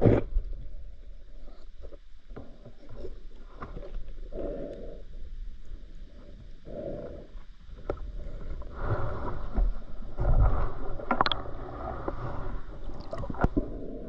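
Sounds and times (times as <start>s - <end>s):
water sloshing and splashing: 10.4s - 13.6s.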